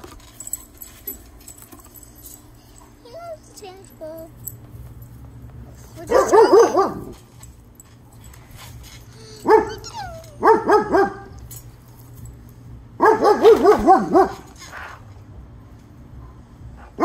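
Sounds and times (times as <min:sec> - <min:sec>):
dog barking: 0:06.0 - 0:07.2, 0:09.4 - 0:11.4, 0:13.0 - 0:14.5.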